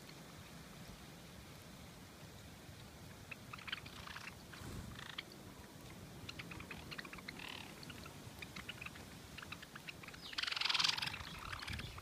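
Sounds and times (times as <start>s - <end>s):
sparrows chirping: 3.2s - 5.3s, 6.2s - 12.0s
rushing burst of wings: 4.5s - 5.2s.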